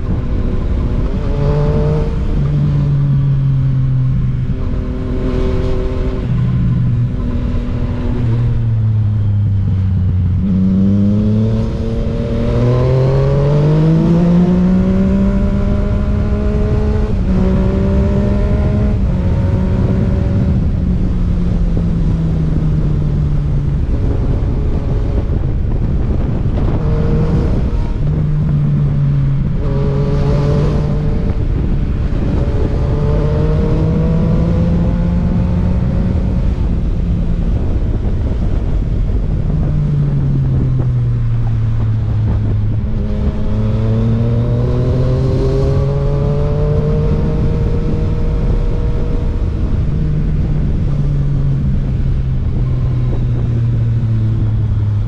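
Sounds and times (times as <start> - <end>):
motorcycle engine accelerating: 0.0 - 55.0
wind noise: 0.0 - 55.0.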